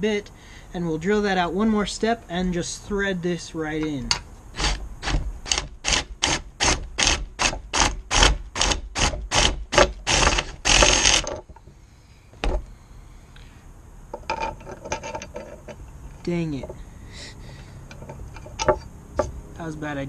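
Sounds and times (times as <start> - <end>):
cordless drill cutting into metal: 4.6 - 11.3.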